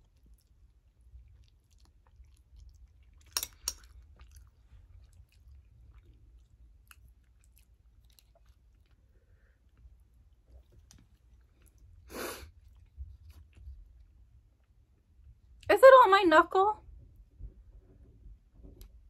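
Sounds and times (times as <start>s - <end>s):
chewing noodles: 0.0s - 14.8s.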